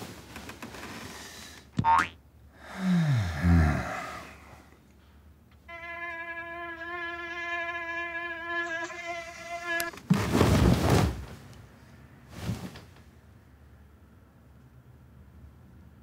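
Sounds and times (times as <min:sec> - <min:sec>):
mosquito whine: 0:05.7 - 0:10.0
bedclothes rustling: 0:10.0 - 0:13.0.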